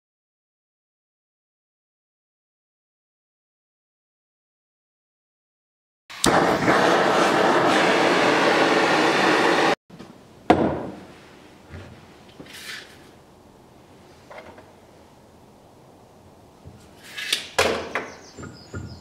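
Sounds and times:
power tool running: 6.1 - 9.8
board knocking on workbench: 10.5 - 11.0, 17.6 - 19.0.

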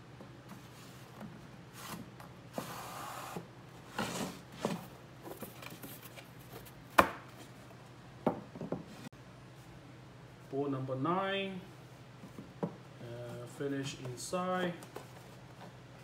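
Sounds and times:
hard wooden knocks: 8.2 - 8.9.

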